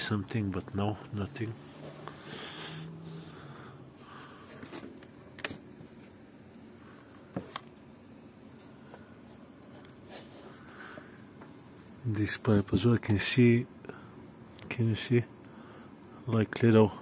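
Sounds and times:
handling rustling and scraping: 1.4s - 2.9s, 4.4s - 6.2s, 7.0s - 10.8s.

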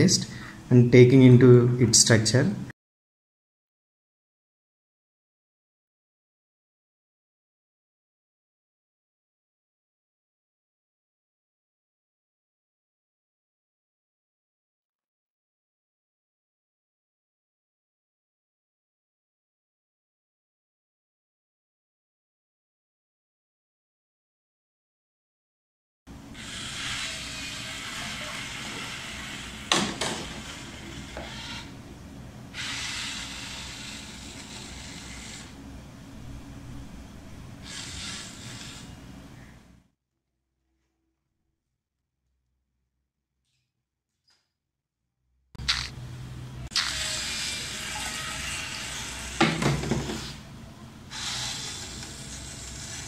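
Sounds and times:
small motor: 26.3s - 31.8s, 32.5s - 35.6s, 37.6s - 39.0s, 45.6s - 46.0s, 46.6s - 50.4s, 51.1s - 53.0s.

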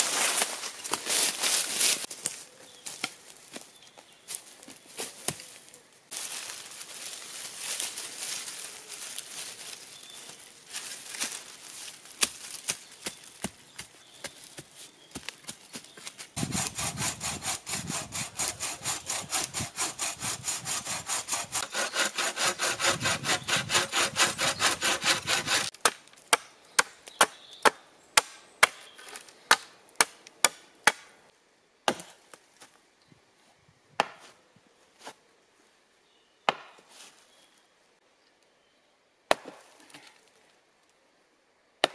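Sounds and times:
leafy branch rustling: 0.0s - 3.7s, 4.3s - 13.4s
hand saw cutting wood: 16.4s - 25.7s.

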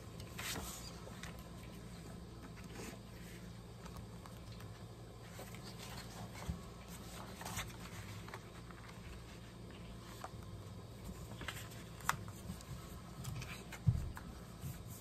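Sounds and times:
low steady hum: 0.0s - 15.0s
book pages riffled: 0.3s - 1.4s, 5.1s - 15.0s
paper rustling and sliding: 0.3s - 1.4s, 5.2s - 10.4s.

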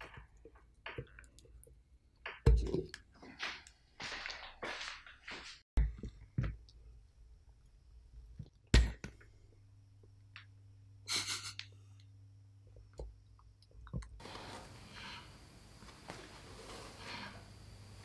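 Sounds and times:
steady low hum: 5.8s - 18.0s.

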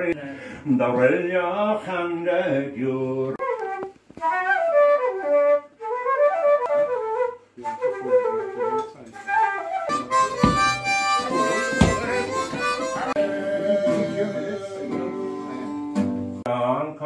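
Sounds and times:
acoustic guitar strumming: 9.9s - 16.5s.

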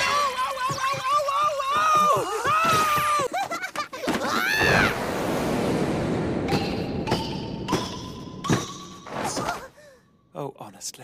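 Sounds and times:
cartoon thuds with ringing tone: 6.4s - 9.5s.

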